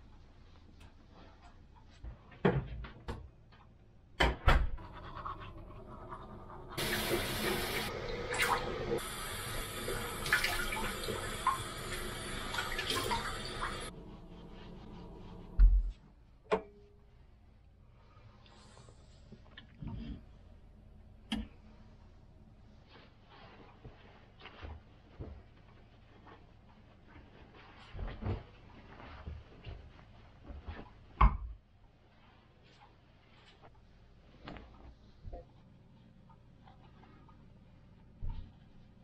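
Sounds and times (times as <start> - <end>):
water splashing on face: 6.8 - 13.9.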